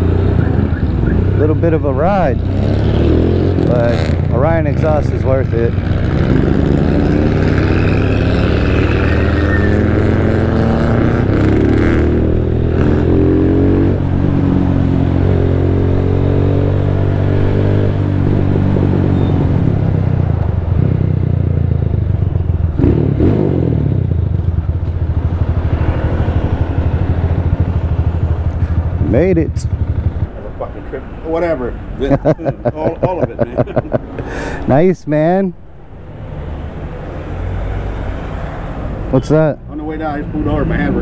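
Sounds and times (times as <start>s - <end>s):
motorcycle engine running: 20.8s - 30.5s.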